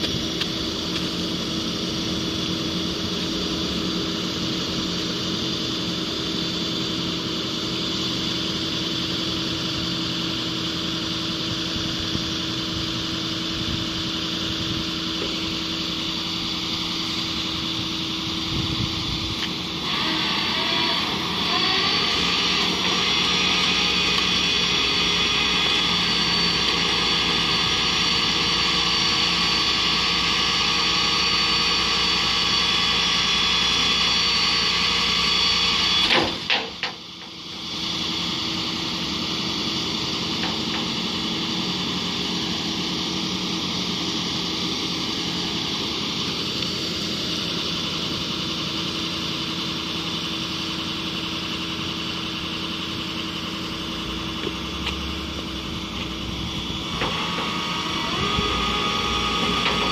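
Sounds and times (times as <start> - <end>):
vehicle engine humming: 0.0 - 59.9.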